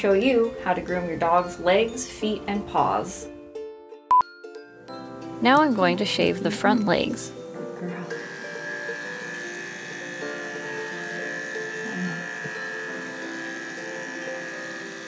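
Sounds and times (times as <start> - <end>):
background music: 0.0 - 15.0
electric pet clipper whining: 7.3 - 15.0.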